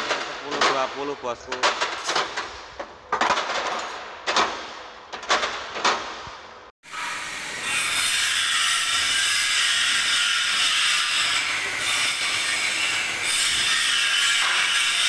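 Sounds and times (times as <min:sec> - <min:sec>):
loud workshop hissing: 0:06.8 - 0:15.0.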